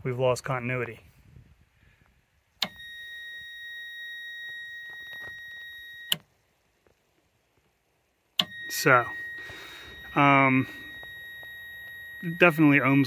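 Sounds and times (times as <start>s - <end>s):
high-pitched multimeter beep: 2.6s - 6.2s, 8.4s - 13.0s.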